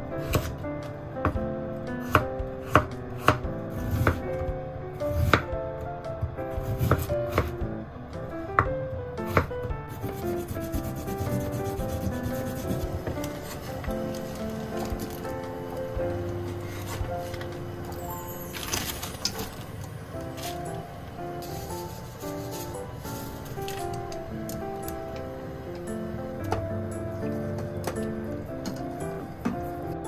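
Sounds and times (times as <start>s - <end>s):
soft background music: 0.0s - 30.0s
knife chopping on cutting board: 0.2s - 0.5s, 2.0s - 4.2s, 6.6s - 7.5s, 9.3s - 13.6s.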